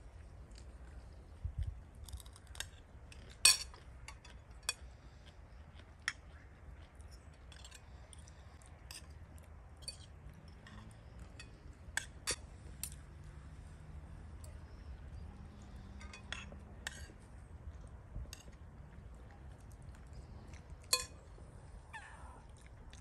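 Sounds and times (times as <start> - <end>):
cutlery clinking against a dish: 3.4 - 4.8, 15.9 - 17.1, 20.9 - 21.2.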